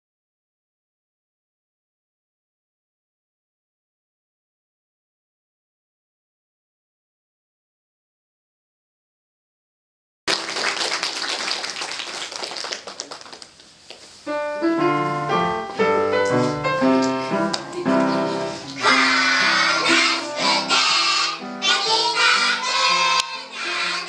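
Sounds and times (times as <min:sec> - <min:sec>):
audience applause: 0:10.3 - 0:13.6
piano chords and melody: 0:14.2 - 0:21.6
children singing: 0:18.8 - 0:24.0.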